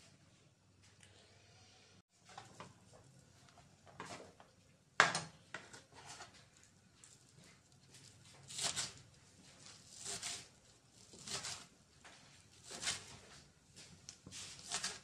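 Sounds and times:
onions scraping rustle: 0:07.9 - 0:11.7, 0:14.3 - 0:15.0.

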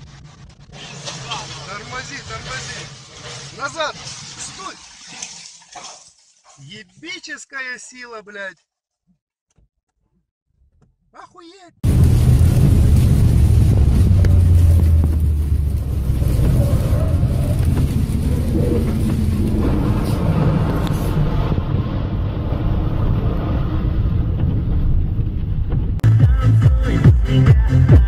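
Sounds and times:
car rumble on wet road: 0:00.0 - 0:04.7, 0:11.8 - 0:26.0.

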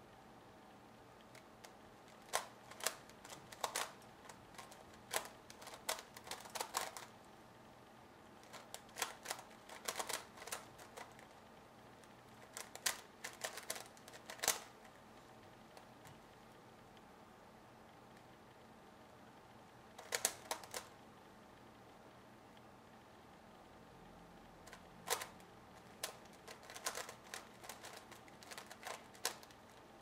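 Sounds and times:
plastic puzzle layers clicking: 0:01.2 - 0:07.1, 0:08.4 - 0:11.3, 0:12.4 - 0:15.0, 0:20.0 - 0:20.9, 0:24.6 - 0:29.8.

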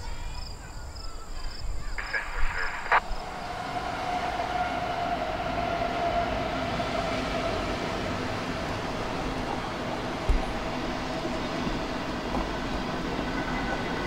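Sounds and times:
freight train rumble: 0:01.8 - 0:14.0
high whine: 0:02.0 - 0:03.8.

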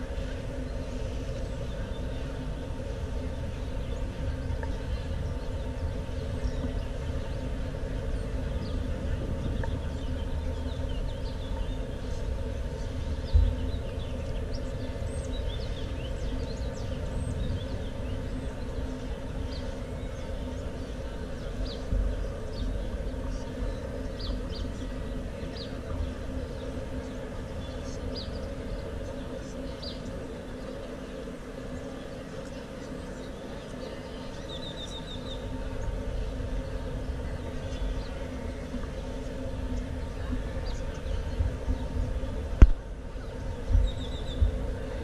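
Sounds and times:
constant hum: 0:00.0 - 0:45.0
low traffic rumble: 0:00.0 - 0:45.0.

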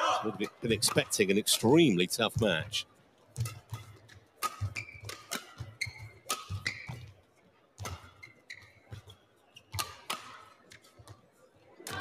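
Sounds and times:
rackets hitting shuttlecock: 0:00.4 - 0:01.2, 0:03.4 - 0:07.1, 0:07.8 - 0:08.2, 0:09.7 - 0:10.8
shoes squeaking on court: 0:03.4 - 0:11.2.

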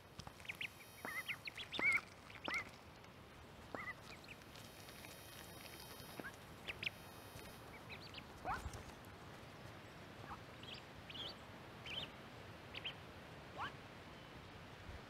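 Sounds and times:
ducklings peeping: 0:00.2 - 0:03.0, 0:03.6 - 0:08.8, 0:10.2 - 0:13.0.

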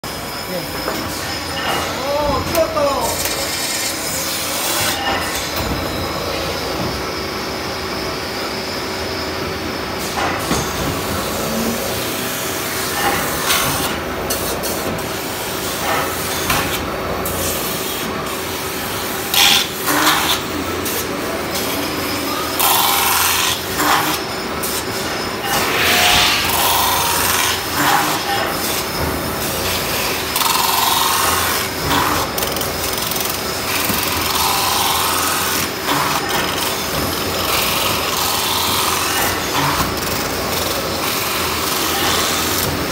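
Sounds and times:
metal spinning machine scraping: 0:25.0 - 0:28.4.

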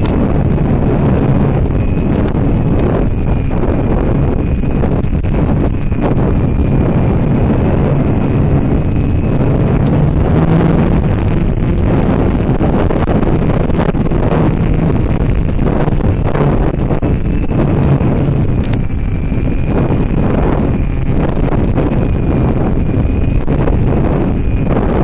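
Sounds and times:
faint motor whine: 0:00.0 - 0:25.0
wind buffeting microphone: 0:00.0 - 0:25.0.

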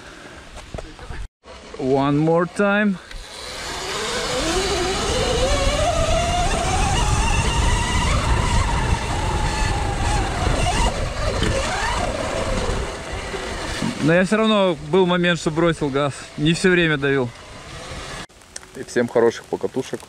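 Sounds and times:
wind and tyre noise: 0:00.0 - 0:20.0
electric motor whining: 0:03.0 - 0:14.1
passing motor whine: 0:03.0 - 0:18.3.

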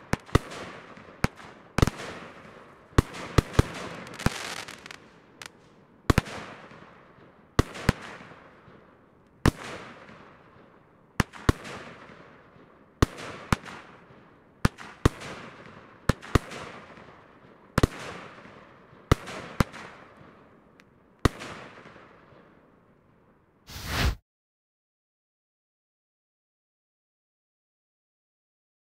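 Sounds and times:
short loud burst of noise: 0:23.7 - 0:24.2.

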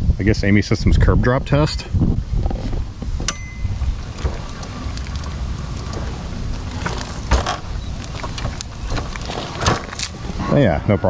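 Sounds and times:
wheelchair wheels rumbling: 0:02.0 - 0:10.5
wheelchair thumping off curb: 0:02.4 - 0:10.4.

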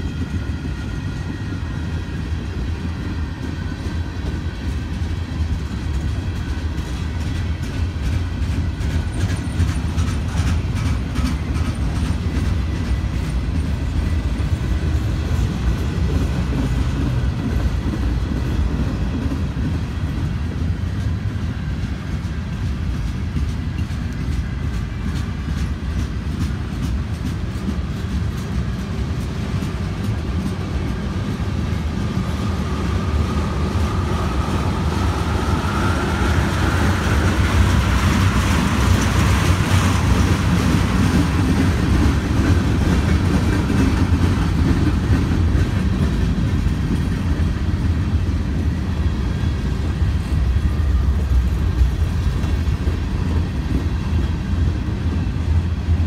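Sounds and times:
train rumbling on rails: 0:00.0 - 0:56.0
wheels clicking over rail joints: 0:02.2 - 0:56.0.

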